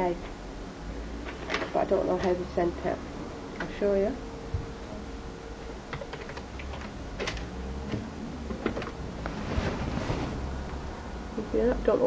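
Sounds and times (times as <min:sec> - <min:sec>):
keyboard typing: 0:05.9 - 0:06.9.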